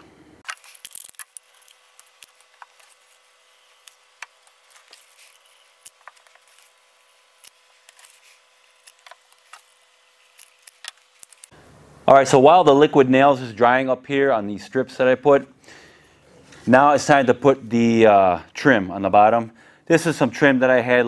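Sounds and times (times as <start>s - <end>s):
wooden strips being handled: 0.4s - 11.5s.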